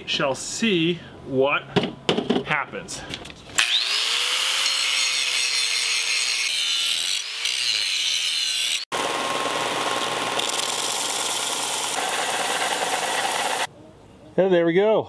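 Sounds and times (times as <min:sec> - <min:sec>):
angle grinder grinding metal: 0:03.6 - 0:13.7
belt sander running: 0:08.8 - 0:13.7.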